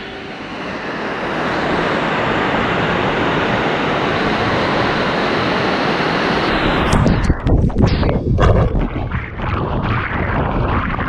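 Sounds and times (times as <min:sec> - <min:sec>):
waterfall roaring: 0:00.0 - 0:07.0.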